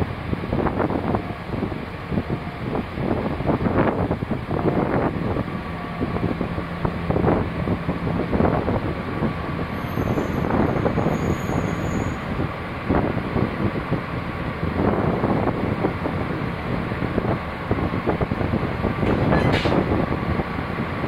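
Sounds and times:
diesel locomotive engine running: 0.0s - 21.0s
faint high squeal: 9.7s - 12.3s.

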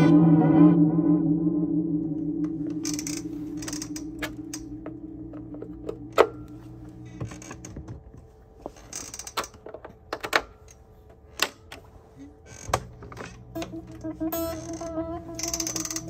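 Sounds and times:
echoing held note: 0.0s - 7.2s, 13.6s - 16.0s
creaks: 1.9s - 10.0s, 12.2s - 16.0s.

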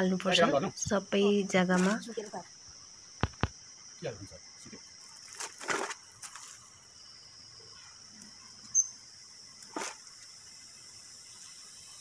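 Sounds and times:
high-pitched insect drone: 0.0s - 12.0s
sharp chirp: 8.7s - 9.0s.

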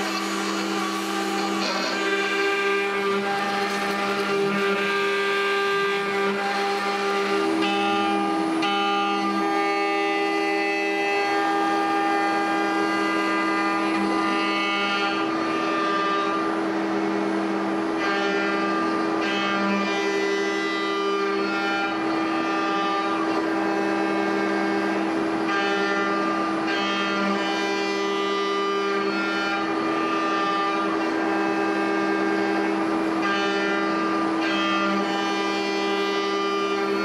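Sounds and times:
sustained instrumental notes: 0.0s - 7.4s
low drone: 0.0s - 8.6s.

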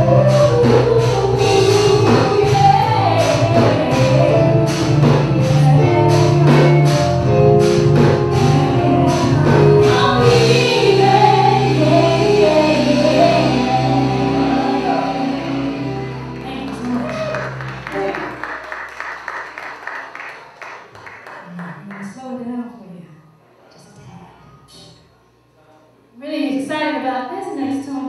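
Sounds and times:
woman singing: 0.0s - 7.0s, 8.3s - 17.2s
drums: 0.0s - 18.5s
electric guitar: 0.0s - 18.6s
keyboards: 0.0s - 18.9s.

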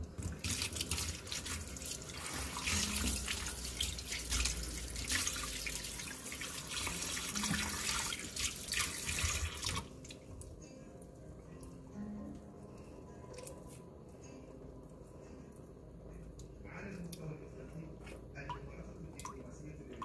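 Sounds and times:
hands rubbing and rinsing: 0.0s - 10.1s
tap water splashing into bowl: 7.2s - 9.9s.

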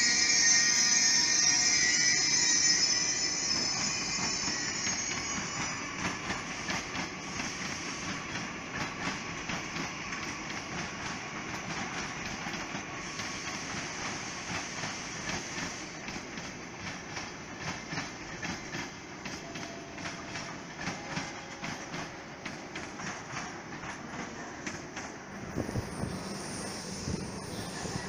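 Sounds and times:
rail rumble: 21.6s - 28.0s.

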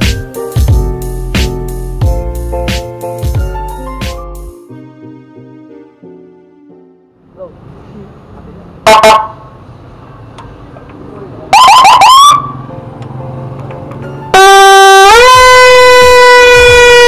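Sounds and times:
electronic siren blast: 8.8s - 9.4s, 11.5s - 12.6s, 14.4s - 17.0s
siren rising yelps: 8.8s - 9.4s, 11.5s - 12.6s, 14.4s - 17.0s
steady siren horn tone: 8.8s - 9.5s, 11.5s - 12.6s, 14.3s - 17.0s.

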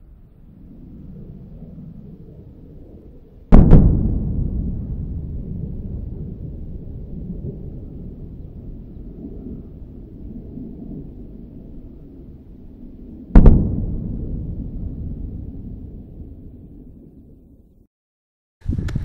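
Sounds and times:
low rumble: 0.0s - 17.9s.

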